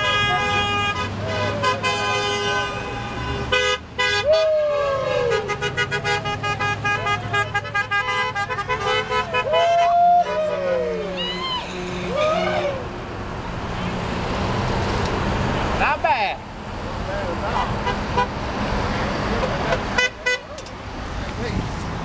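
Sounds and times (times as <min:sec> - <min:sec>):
car and truck horns honking: 0:00.0 - 0:13.0, 0:17.2 - 0:20.7
engine rumble: 0:00.0 - 0:22.0
people whooping and yelling: 0:04.2 - 0:05.5, 0:09.3 - 0:12.9.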